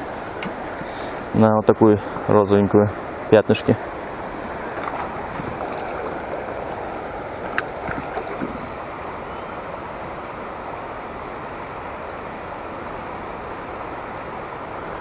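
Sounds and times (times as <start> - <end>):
water flowing over stones: 3.8 - 15.0.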